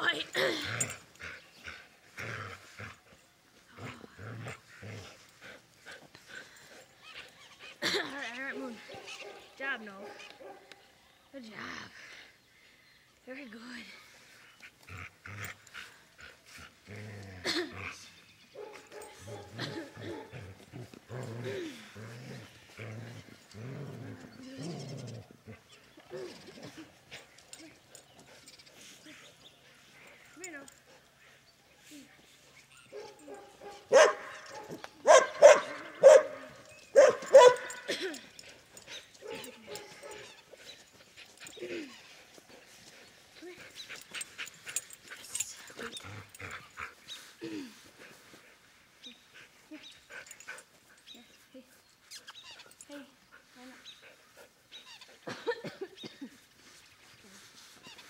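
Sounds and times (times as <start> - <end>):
dog barking: 18.6 - 19.5, 32.9 - 37.9
dog barking and growling: 18.6 - 24.9, 32.9 - 38.1, 39.2 - 40.2.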